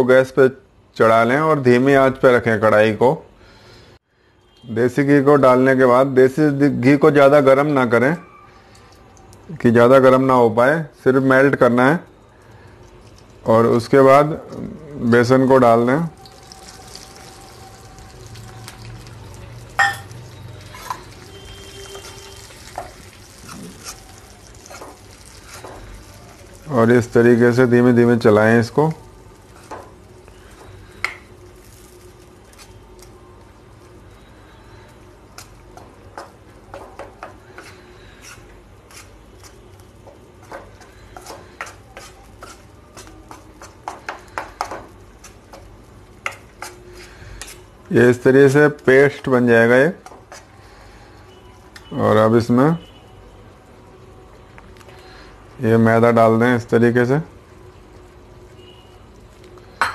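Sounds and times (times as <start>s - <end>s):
spoon striking metal pan: 19.8s - 21.1s
spoon clinking while stirring: 19.8s - 23.0s.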